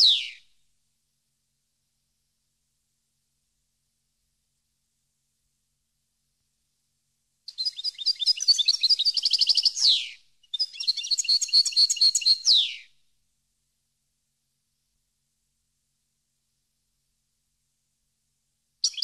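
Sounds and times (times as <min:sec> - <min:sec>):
goldfinch twittering song: 0:07.5 - 0:12.8.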